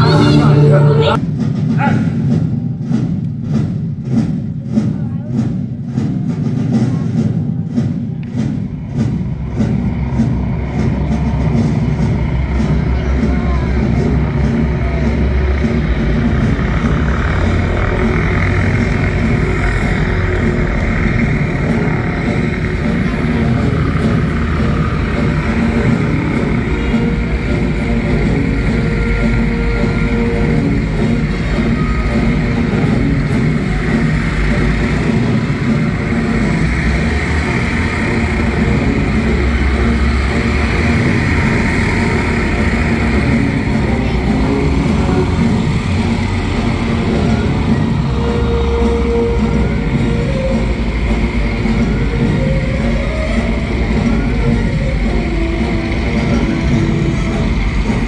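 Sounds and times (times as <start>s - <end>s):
engine running: 0.0s - 58.0s.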